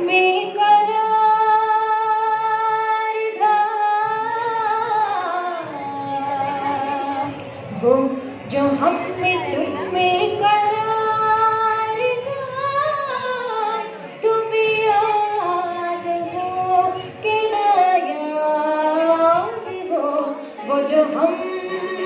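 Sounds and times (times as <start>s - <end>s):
girl singing into a microphone: 0.0s - 22.0s.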